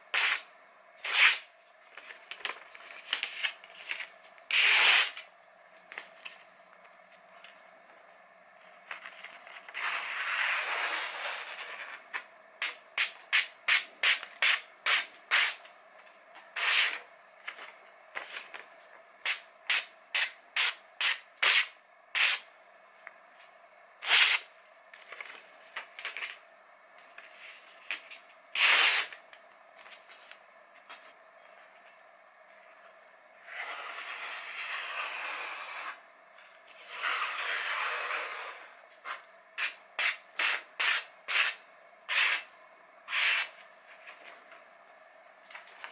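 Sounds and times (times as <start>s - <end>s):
knife slicing paper: 0.1s - 2.4s, 3.0s - 5.3s, 12.6s - 15.6s, 16.6s - 17.0s, 19.2s - 22.5s, 24.0s - 24.5s, 28.5s - 29.2s, 39.6s - 42.5s, 43.1s - 43.6s.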